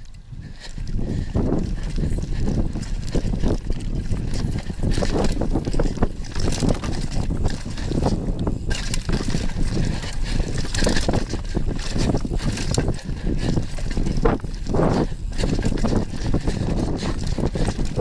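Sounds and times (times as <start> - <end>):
bike rattling over bumps: 0.0 - 18.0
bike tyres rolling over dirt: 0.0 - 18.0
wind buffeting microphone: 0.0 - 18.0.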